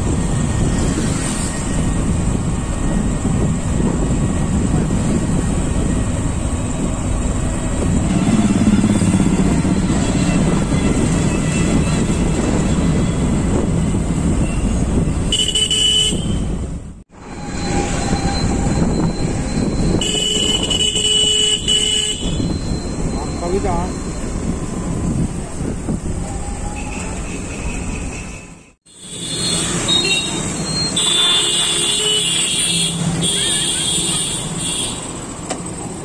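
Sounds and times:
wind rush: 0:00.0 - 0:21.4, 0:22.2 - 0:27.2
motorcycle engine: 0:05.7 - 0:12.8
vehicle horn toots: 0:15.3 - 0:16.6, 0:19.9 - 0:22.6, 0:26.8 - 0:35.1.

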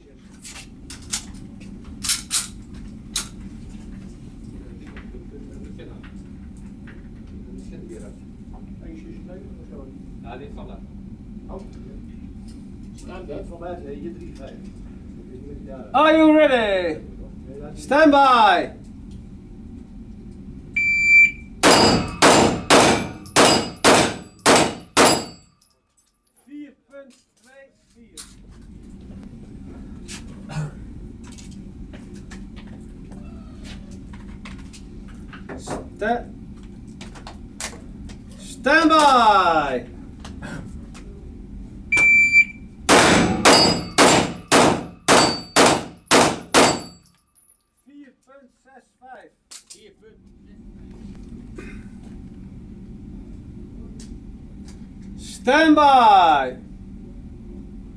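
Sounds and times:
shot timer beep: 0:20.8 - 0:22.2, 0:41.9 - 0:42.6
pistol shots echoing: 0:21.6 - 0:25.3, 0:42.9 - 0:46.9.

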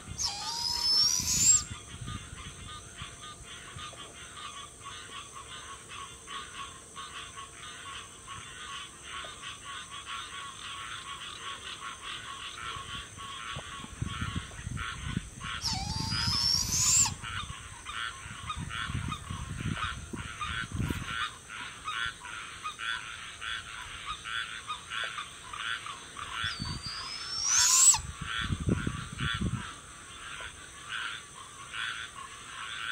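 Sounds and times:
frog chorus: 0:00.0 - 0:32.9
owl hissing screech: 0:00.1 - 0:01.7, 0:15.6 - 0:17.2, 0:26.4 - 0:28.0.

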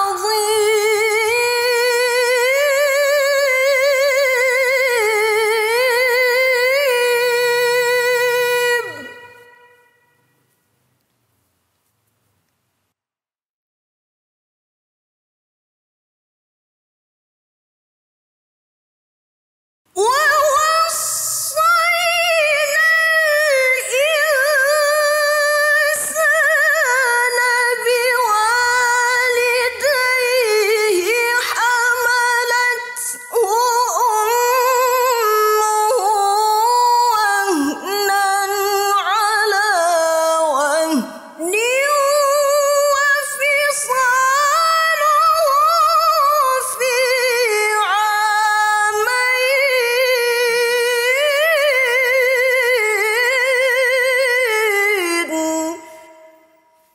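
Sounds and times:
woman reciting melodically: 0:00.0 - 0:10.2, 0:20.0 - 0:56.6.

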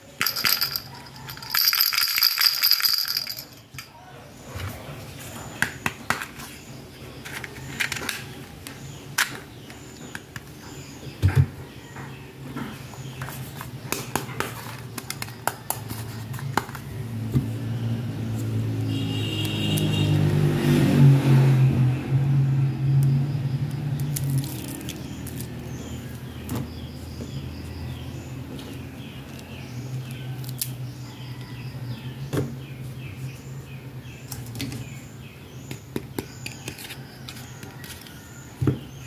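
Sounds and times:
plastic toys clicking and tapping: 0:00.1 - 0:03.9, 0:13.9 - 0:16.8.

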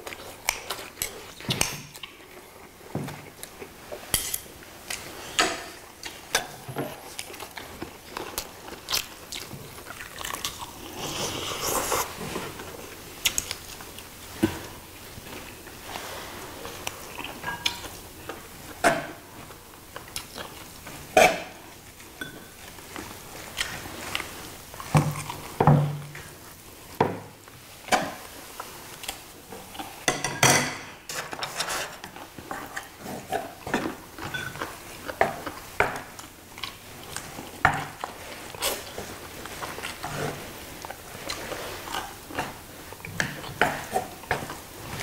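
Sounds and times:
chewing: 0:00.0 - 0:25.6, 0:32.0 - 0:45.0
utensils clinking on plates: 0:22.2 - 0:22.6, 0:30.0 - 0:32.0, 0:33.7 - 0:34.7.

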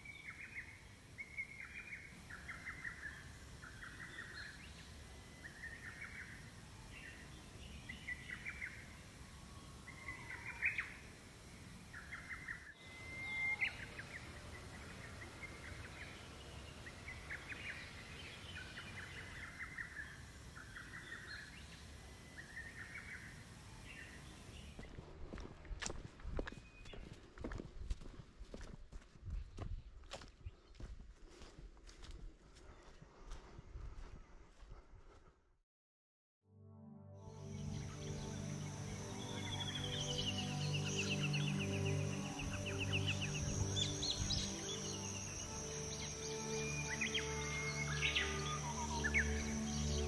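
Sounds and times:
outdoor background noise: 0:00.0 - 0:35.4, 0:37.2 - 0:50.0
bird chirping calls: 0:12.0 - 0:24.9, 0:37.4 - 0:50.0.

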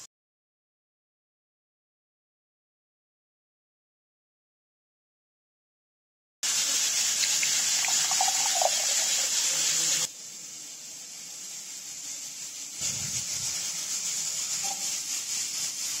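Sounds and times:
liquid pouring through a strainer: 0:07.0 - 0:10.0.

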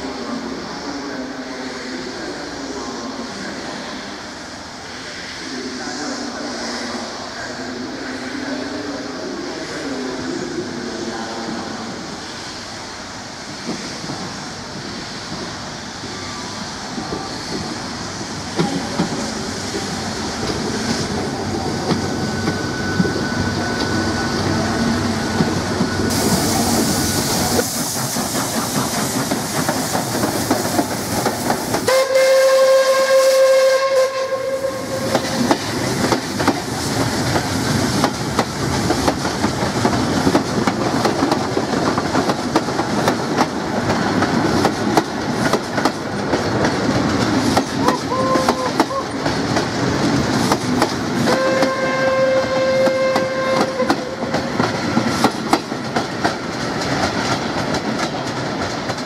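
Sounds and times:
steam hissing: 0:00.0 - 0:59.0
steam locomotive running: 0:00.0 - 0:59.0
steam whistle blast: 0:31.9 - 0:35.2, 0:51.3 - 0:54.2.

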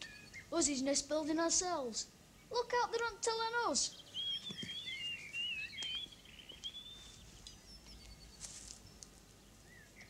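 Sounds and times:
songbird warbling: 0:03.6 - 0:10.0.

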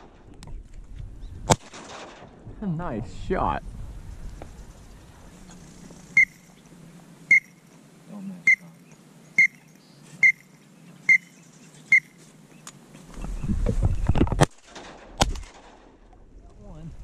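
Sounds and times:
duck whistle call peeps: 0:09.4 - 0:09.6, 0:10.2 - 0:10.5, 0:11.1 - 0:11.3.

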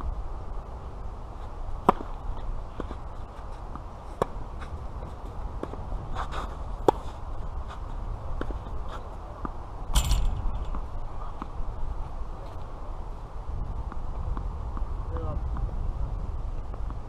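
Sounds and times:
tennis ball struck by rackets: 0:01.8 - 0:02.2, 0:03.7 - 0:04.4.

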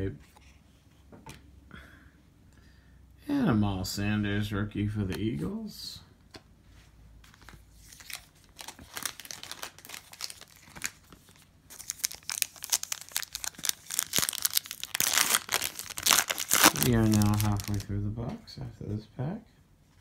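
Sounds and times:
plastic wrapper crinkling: 0:07.3 - 0:17.9
plastic wrapper ripping: 0:07.9 - 0:17.9.

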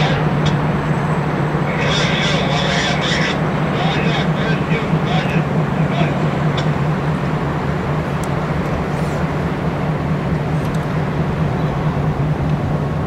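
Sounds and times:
locomotive engine drone: 0:00.0 - 0:13.0.

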